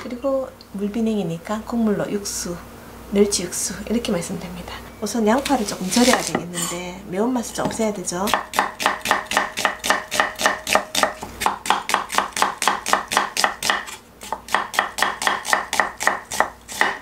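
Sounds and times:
knife chopping on wooden board: 5.4 - 6.5, 7.6 - 17.0.

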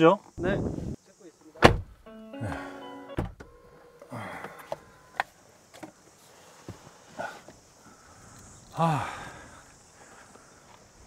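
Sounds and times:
clunks and knocks from car: 1.6 - 1.9.

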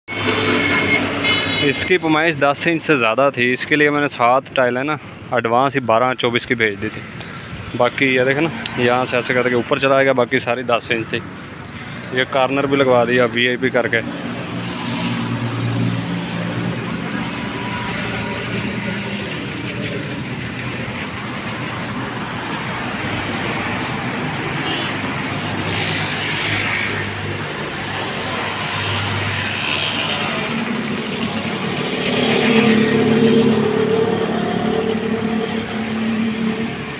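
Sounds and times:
street traffic noise: 0.0 - 36.9
motor vehicle engine hum: 14.3 - 36.9.

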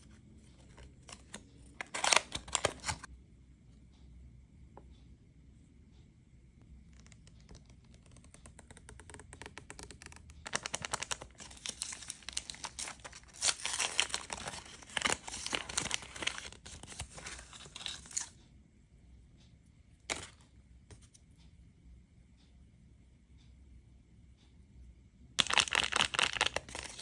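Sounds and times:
paper wrapping crumpling: 0.6 - 3.1, 7.0 - 18.3, 25.4 - 27.0.

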